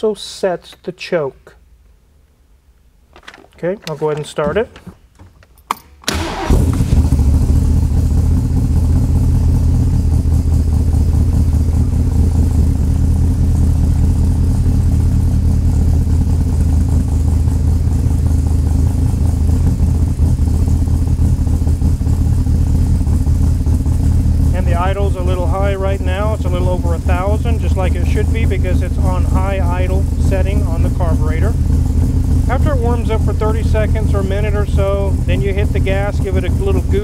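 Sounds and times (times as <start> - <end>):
engine starting and fast idling: 6.1 - 37.0.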